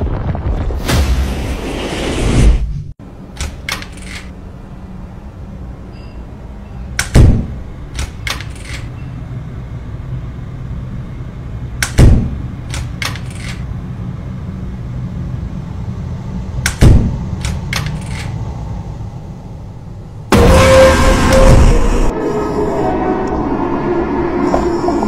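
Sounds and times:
steady low hum: 3.0 - 20.6
heavy thuds on a door: 7.1 - 7.6, 16.8 - 17.2.

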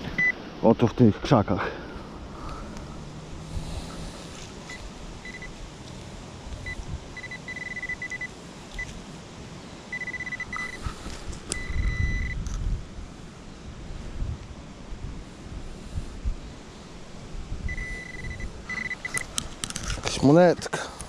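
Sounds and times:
metal detector beeps: 4.7 - 5.5, 6.6 - 8.9, 9.9 - 10.8, 11.5 - 12.4, 17.7 - 19.3.

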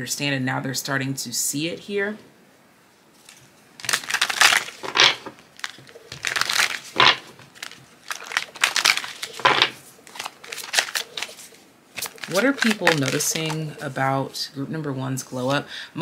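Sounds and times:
cards being shuffled: 3.2 - 14.0.

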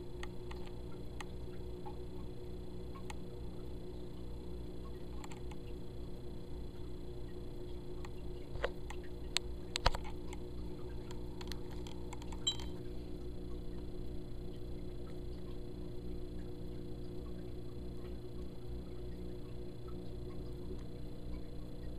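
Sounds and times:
low electrical hum: 0.0 - 21.9
short electronic beep: 12.4 - 12.8.

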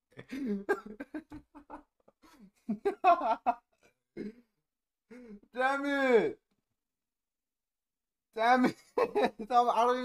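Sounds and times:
man laughing: 0.2 - 3.7, 8.6 - 9.8.

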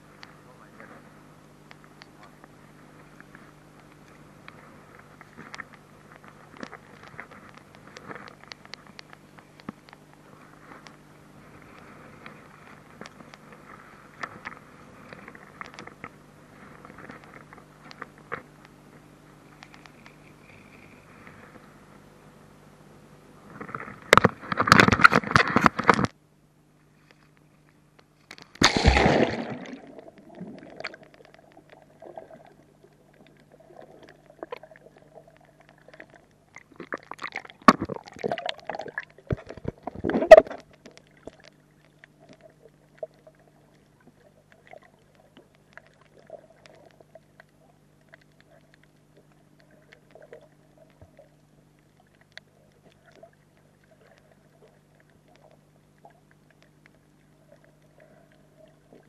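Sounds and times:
muffled underwater hum: 0.0 - 59.0
scattered ticks: 3.2 - 11.0, 19.5 - 21.7
sharp knocks underwater: 23.6 - 26.2, 28.3 - 31.8, 36.6 - 41.5
camera splashing into water: 28.5 - 31.1.

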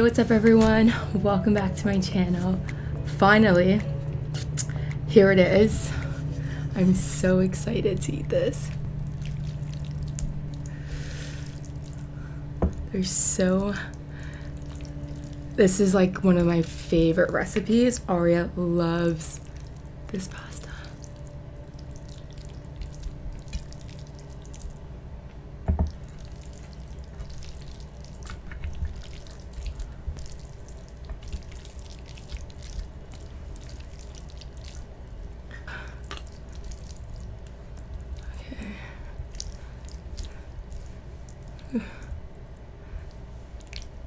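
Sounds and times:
steady low hum: 0.0 - 44.0
wet squelches of spaghetti: 8.4 - 12.4, 13.7 - 15.8, 19.2 - 24.9, 25.9 - 44.0.

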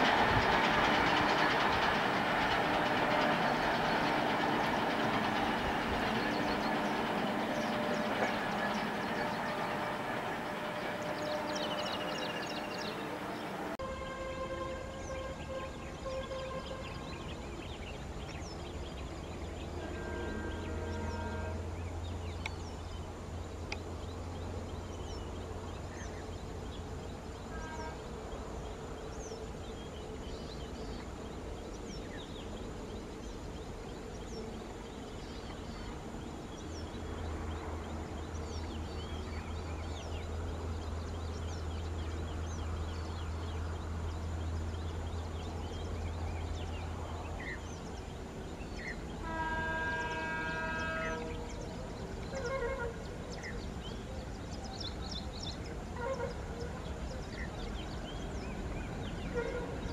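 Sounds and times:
steady low rumble: 0.0 - 13.8.

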